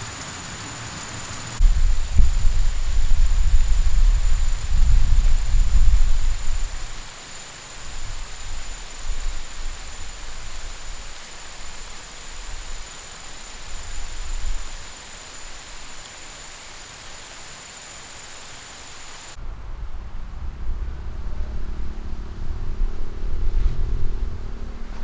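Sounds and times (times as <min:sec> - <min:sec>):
sprinkler spraying water: 0:00.0 - 0:19.4
thin high steady tone: 0:00.0 - 0:19.4
low rumbling: 0:01.6 - 0:07.0, 0:19.4 - 0:25.0.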